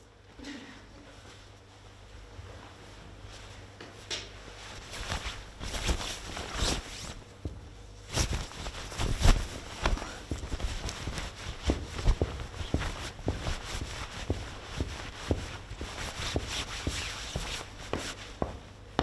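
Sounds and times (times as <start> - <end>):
dress shoes stepping on wooden board: 11.6 - 19.0.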